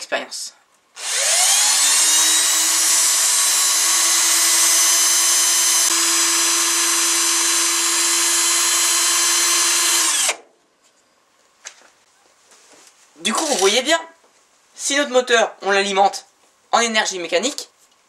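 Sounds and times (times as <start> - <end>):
cordless drill whining: 1.0 - 10.4.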